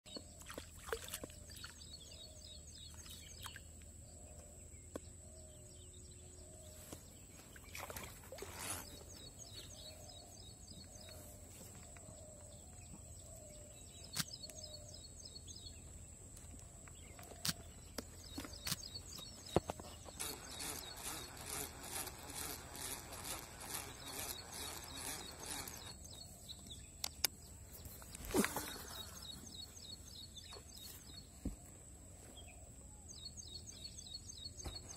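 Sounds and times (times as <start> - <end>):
birds calling: 0.1 - 34.9
rhythmic rattling: 20.0 - 26.0.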